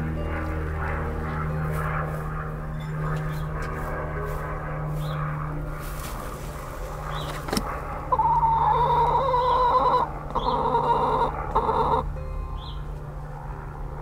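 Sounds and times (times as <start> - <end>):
hen calling: 8.1 - 12.8.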